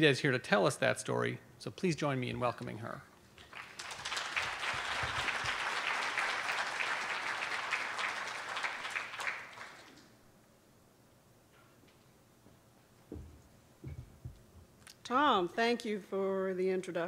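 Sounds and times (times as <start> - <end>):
audience applauding: 3.4 - 10.1.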